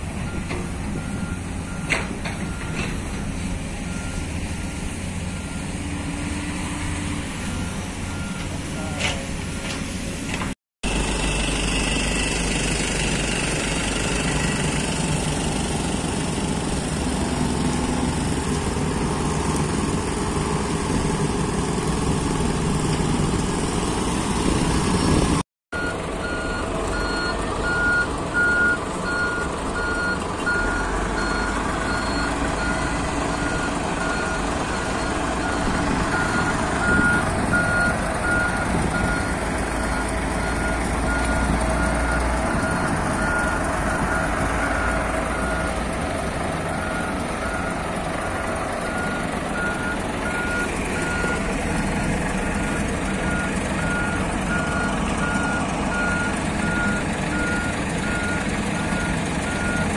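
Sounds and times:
heavy diesel engines running: 0.0s - 59.9s
reversing alarm beeping: 7.4s - 9.8s, 10.9s - 15.2s, 25.8s - 45.8s, 48.9s - 59.9s.

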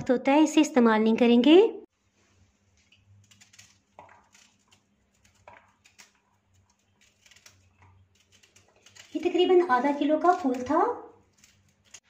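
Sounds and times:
knife cutting cauliflower on board: 2.9s - 12.0s.

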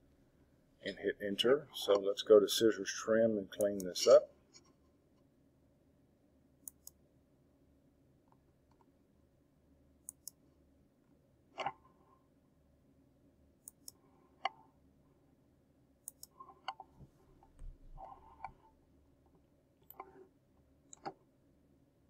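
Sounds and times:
computer mouse clicking: 3.6s - 3.9s, 6.6s - 7.0s, 10.0s - 10.4s, 13.6s - 14.6s, 16.0s - 18.7s, 19.8s - 20.2s, 20.9s - 21.2s.

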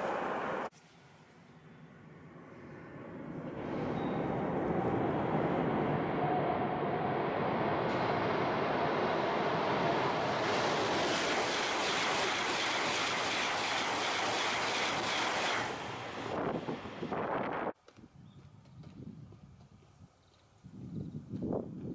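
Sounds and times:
high-speed train passing: 0.0s - 0.7s, 1.7s - 17.7s.

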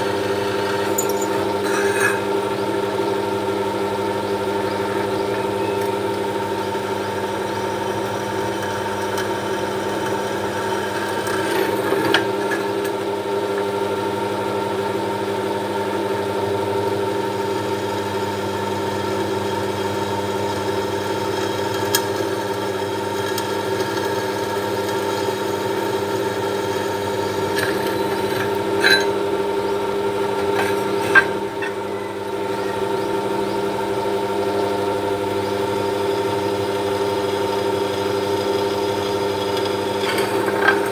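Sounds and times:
drill bit drilling into metal: 0.0s - 2.7s, 21.4s - 33.1s
drill press motor humming: 0.0s - 40.9s.

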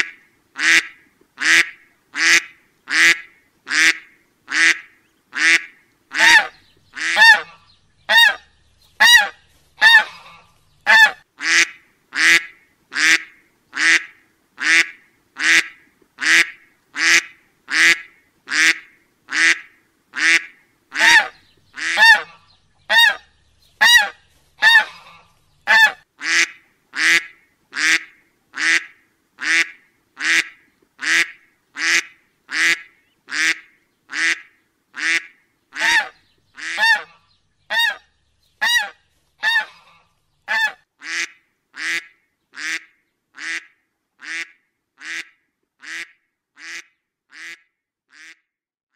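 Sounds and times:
duck quacking: 0.0s - 38.0s, 38.6s - 48.4s.

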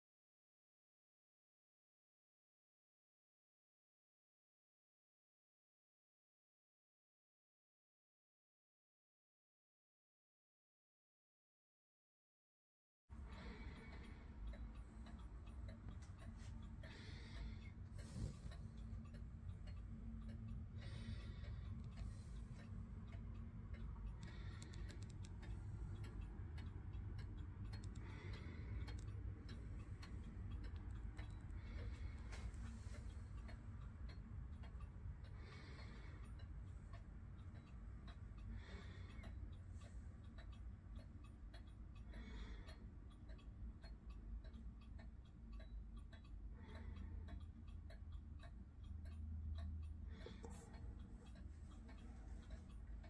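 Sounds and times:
wall clock ticking: 13.1s - 53.0s.

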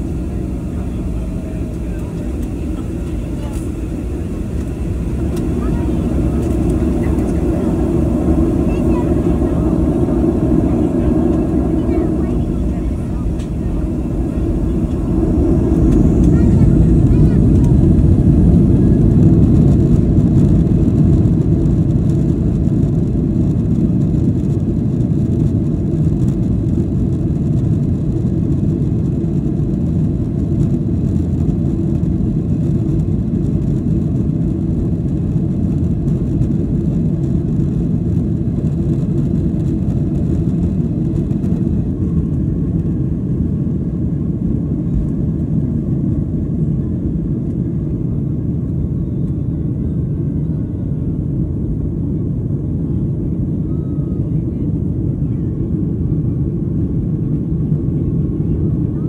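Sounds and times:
airplane cabin engine rumble: 0.0s - 59.0s.

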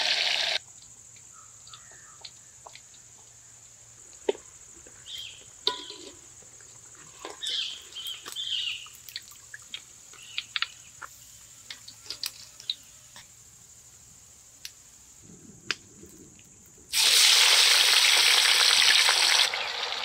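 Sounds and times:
oil bubbling and sizzling: 0.0s - 0.6s, 16.9s - 20.0s.

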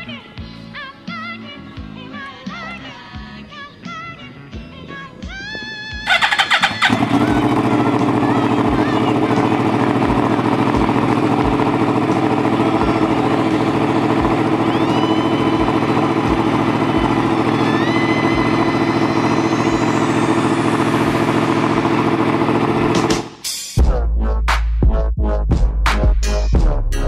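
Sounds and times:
motorcycle engine idling: 6.0s - 23.4s.

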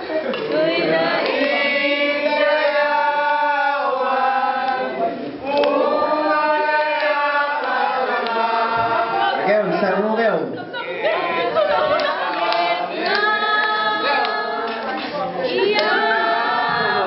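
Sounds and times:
group of people singing: 0.0s - 10.0s, 10.6s - 17.0s.

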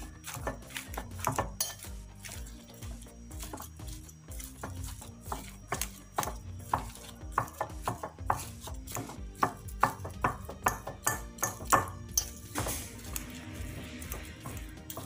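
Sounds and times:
fork scraping glass plate: 1.6s - 5.9s.

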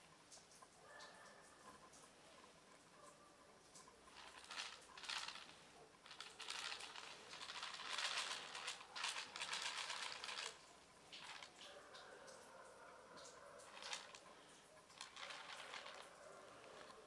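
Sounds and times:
cat crunching dry food: 4.1s - 11.6s, 13.6s - 17.0s.

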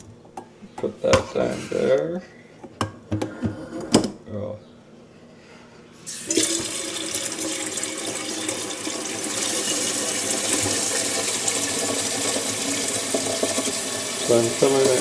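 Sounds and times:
water running into kettle: 6.1s - 15.0s.

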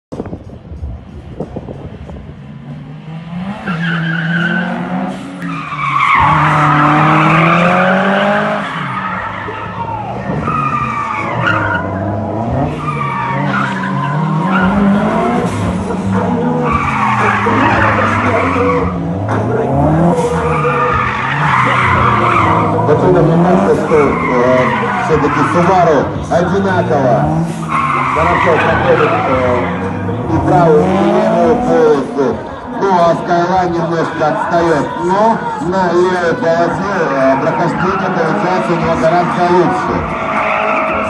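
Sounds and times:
car engines revving: 0.1s - 41.0s
tyres squealing: 3.6s - 41.0s.

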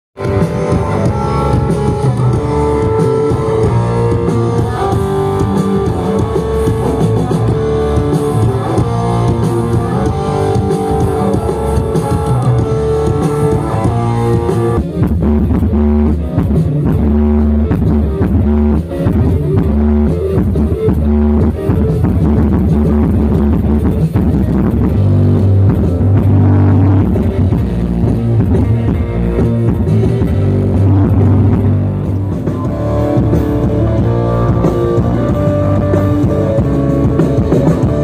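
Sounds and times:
rock music through loudspeakers: 0.2s - 38.0s.

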